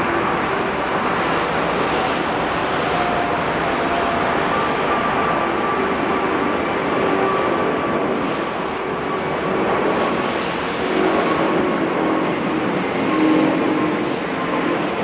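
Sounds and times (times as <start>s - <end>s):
jet engines at takeoff power: 0.0s - 15.0s.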